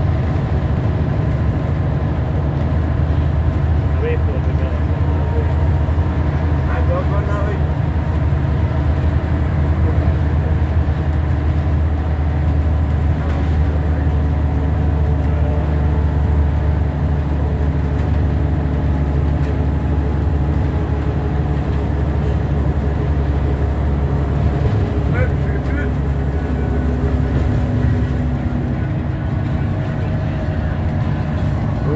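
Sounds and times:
bus engine and road drone: 0:00.0 - 0:31.9.

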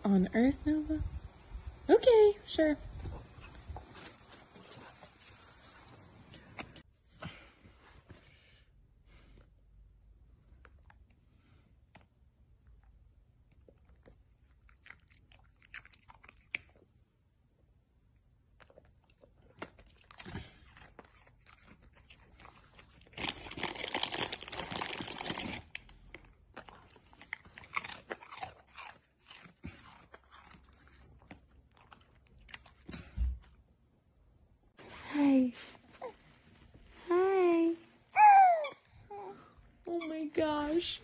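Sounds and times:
dog chewing and crunching: 0:13.4 - 0:17.0, 0:18.5 - 0:33.6.

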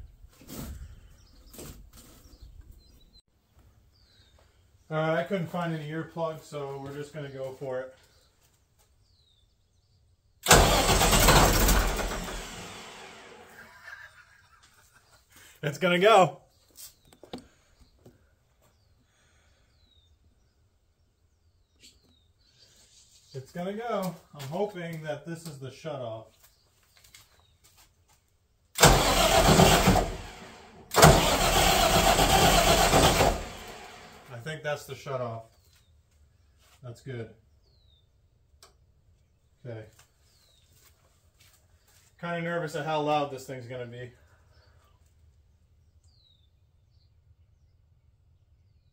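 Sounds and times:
generator engine cranking: 0:10.4 - 0:13.6, 0:28.8 - 0:34.3.

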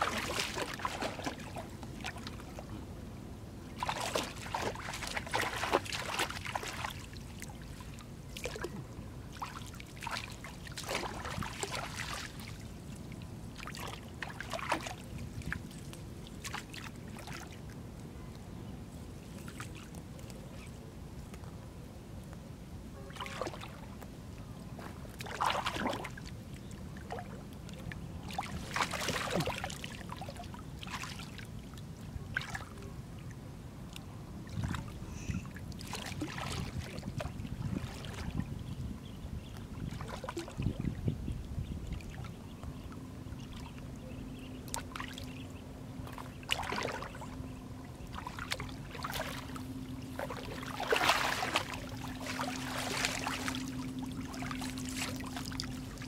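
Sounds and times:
splashing in shallow water: 0:00.0 - 0:02.8, 0:03.6 - 0:18.4, 0:23.0 - 0:33.3, 0:33.9 - 0:38.9, 0:39.5 - 0:41.0, 0:41.7 - 0:56.0
wet net pulled from water: 0:50.2 - 0:55.6.

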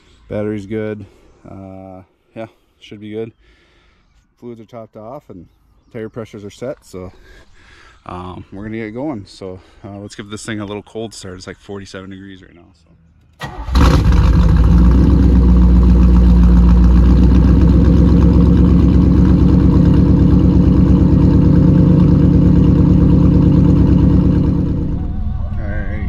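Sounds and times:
car engine starting and idling: 0:13.2 - 0:26.0.

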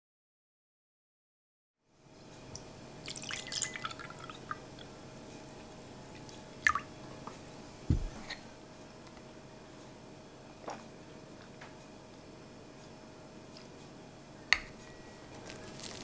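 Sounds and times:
glass clinking: 0:03.0 - 0:04.3
juice pouring into a glass: 0:03.0 - 0:04.6
carton thud on table: 0:07.9 - 0:08.2.

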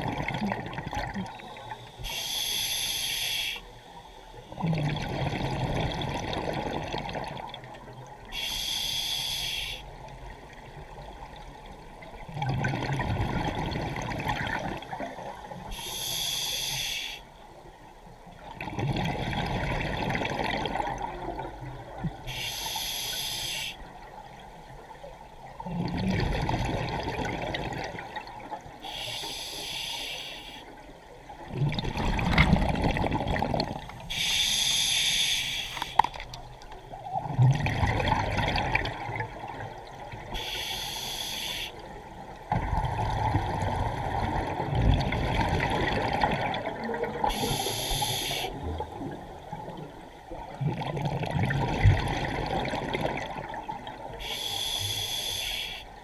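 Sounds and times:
gurgle of exhaled bubbles: 0:00.0 - 0:01.4, 0:04.5 - 0:07.7, 0:12.2 - 0:15.4, 0:18.5 - 0:22.2, 0:25.6 - 0:28.6, 0:31.4 - 0:34.0, 0:37.0 - 0:40.3, 0:42.5 - 0:47.5, 0:48.5 - 0:54.2
hissing regulator inhale: 0:01.8 - 0:03.7, 0:08.4 - 0:09.8, 0:15.7 - 0:17.2, 0:22.3 - 0:23.8, 0:28.8 - 0:30.7, 0:34.1 - 0:36.1, 0:40.4 - 0:41.9, 0:47.3 - 0:48.6, 0:54.2 - 0:55.9.

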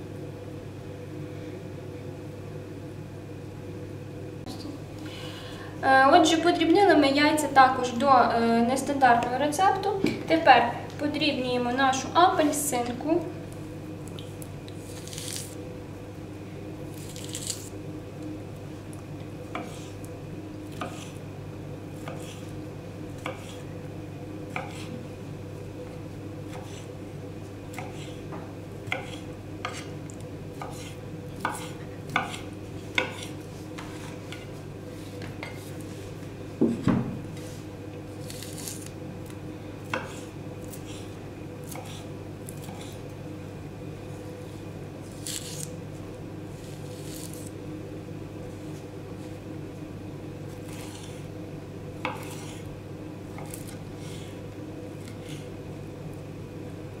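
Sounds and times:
steady low hum: 0:00.0 - 0:57.0
knife knocking on wooden board: 0:36.6 - 0:37.2.

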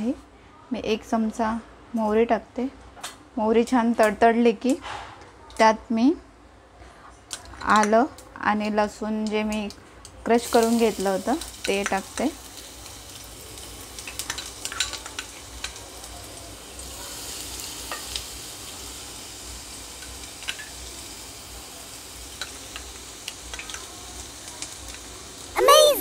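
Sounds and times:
food sizzling in hot oil: 0:10.3 - 0:26.0.

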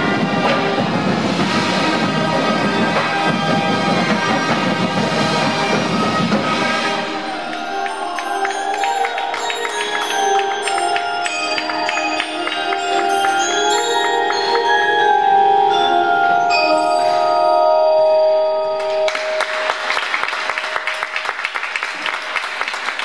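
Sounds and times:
ringing tuned percussion chords: 0:05.0 - 0:19.7
dense clapping: 0:07.3 - 0:14.8, 0:18.8 - 0:23.0.

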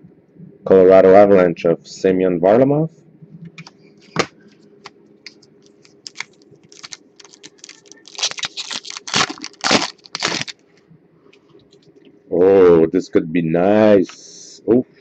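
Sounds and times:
plastic wrapper crinkling and tearing: 0:05.6 - 0:10.6.

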